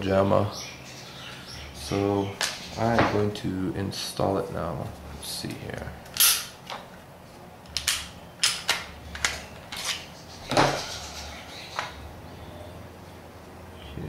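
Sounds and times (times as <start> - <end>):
pistol parts clicking and clacking: 6.2 - 6.5, 7.7 - 10.0.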